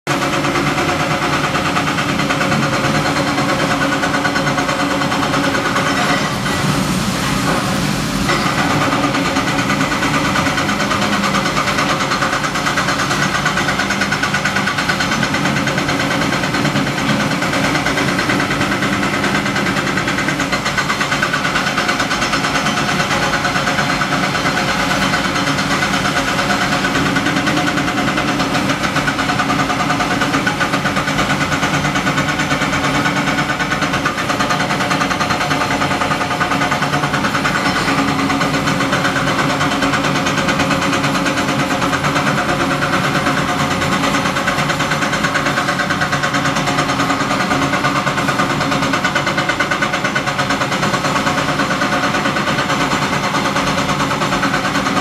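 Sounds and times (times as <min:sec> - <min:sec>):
excavator diesel engine: 0:00.1 - 0:55.0.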